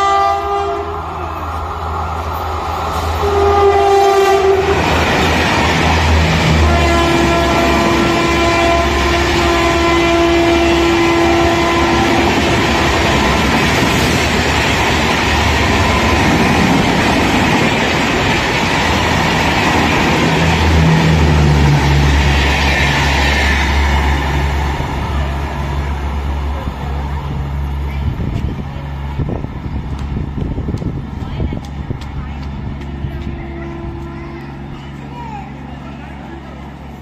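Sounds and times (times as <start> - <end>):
locomotive horn blast: 0.0 - 1.1, 3.1 - 5.0, 6.2 - 13.8, 33.0 - 34.7
train wheels clattering on rails: 29.4 - 34.9.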